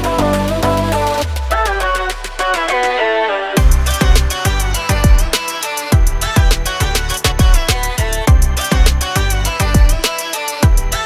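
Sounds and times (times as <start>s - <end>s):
melody: 2.7s - 11.0s
deep kick drum: 3.6s - 10.0s, 10.6s - 11.0s
hi-hat ticks: 3.6s - 11.0s.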